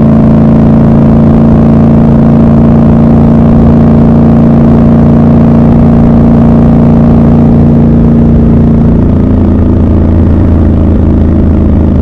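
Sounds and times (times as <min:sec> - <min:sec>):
motorcycle engine cruising: 0:00.0 - 0:12.0.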